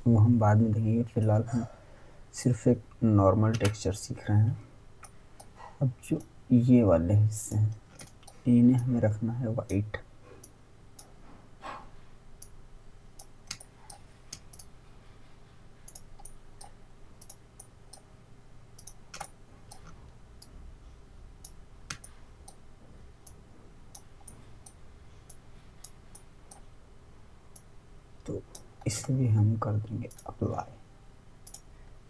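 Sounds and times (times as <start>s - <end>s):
faint low hum: 0.0s - 32.0s
computer mouse clicking: 3.5s - 3.8s, 7.5s - 8.9s, 13.2s - 14.7s, 15.9s - 18.1s, 18.8s - 20.5s, 21.4s - 22.6s, 23.2s - 26.7s, 30.1s - 30.6s, 31.4s - 31.7s.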